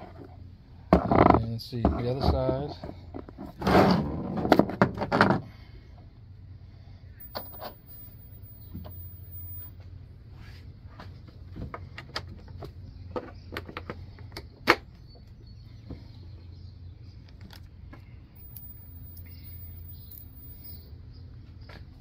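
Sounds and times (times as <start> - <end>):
steady low hum: 14.0 - 22.0.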